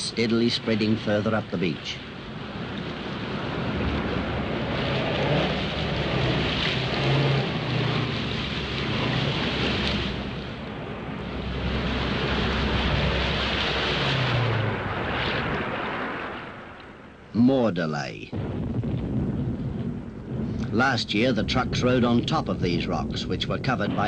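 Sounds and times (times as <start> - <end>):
steady rush of noise: 0.0 - 24.0
vehicle engine revving: 3.4 - 16.5.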